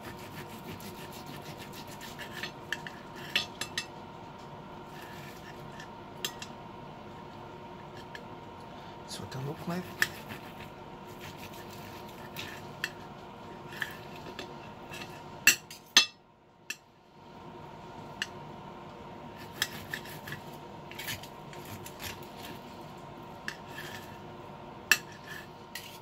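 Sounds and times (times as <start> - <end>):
knife and fork scraping on plate: 0.0 - 3.8, 4.9 - 6.5, 9.8 - 13.0, 13.6 - 15.6, 19.4 - 22.7, 23.4 - 24.2, 24.9 - 26.0.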